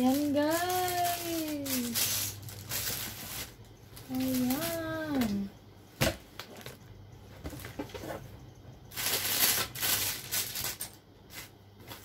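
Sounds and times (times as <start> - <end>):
plastic wrapping crinkling: 0.0 - 5.3, 8.9 - 12.0.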